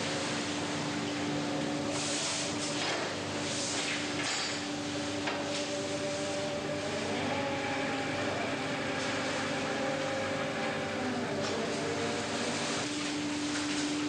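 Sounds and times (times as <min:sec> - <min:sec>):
boat engine drone: 0:05.2 - 0:14.0.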